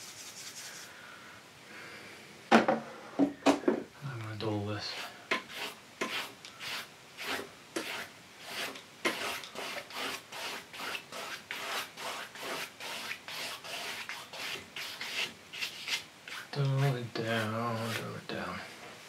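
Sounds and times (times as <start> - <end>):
paintbrush scrubbing on canvas: 0.0 - 0.9, 4.8 - 18.2.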